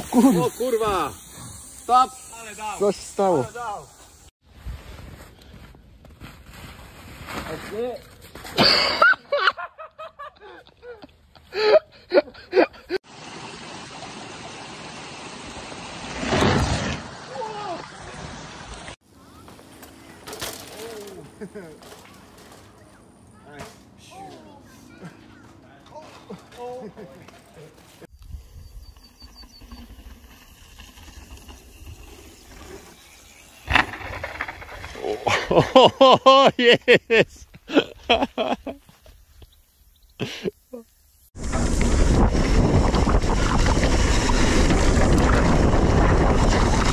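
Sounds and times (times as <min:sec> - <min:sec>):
steady hiss: 0:00.0 - 0:04.3
mountain bike landing impact: 0:19.3 - 0:23.9, 0:29.6 - 0:35.6.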